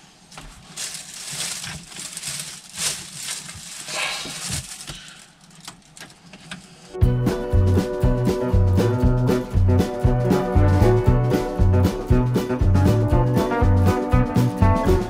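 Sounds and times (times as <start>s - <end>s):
light rustling: 0.3s - 6.7s
music: 7.0s - 15.0s.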